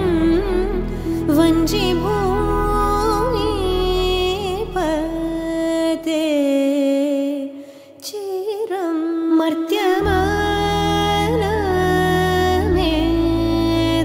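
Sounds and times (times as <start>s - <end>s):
deep bass: 0.0s - 6.1s, 10.0s - 14.0s
soft instrumental backing: 0.0s - 6.2s
woman singing long ornamented notes: 0.0s - 14.0s.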